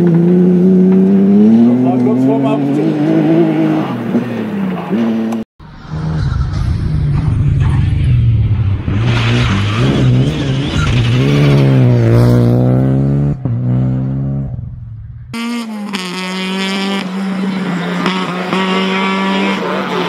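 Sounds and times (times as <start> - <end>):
rally car engine at high revs: 0.0 - 5.4, 15.3 - 20.0
rally car engine accelerating: 0.0 - 20.0.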